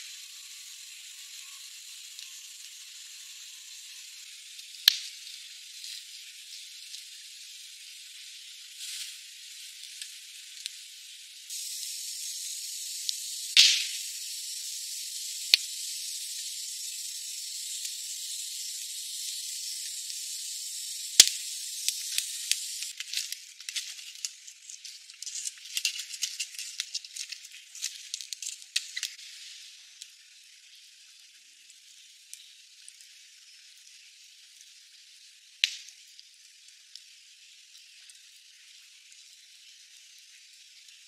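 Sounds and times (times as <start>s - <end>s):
campfire hissing: 0.0s - 41.0s
fire crackling and popping: 4.4s - 30.2s, 35.4s - 39.6s.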